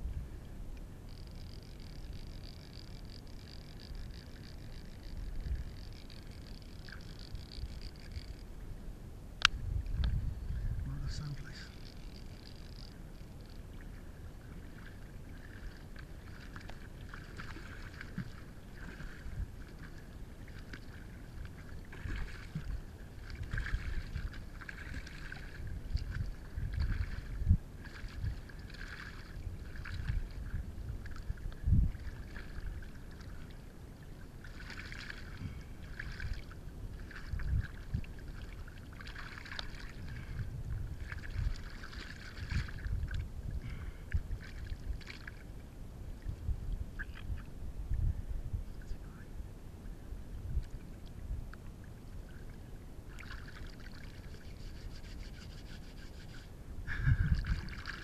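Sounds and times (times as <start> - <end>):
shallow water splashing: 11.0 - 46.4, 52.2 - 58.0.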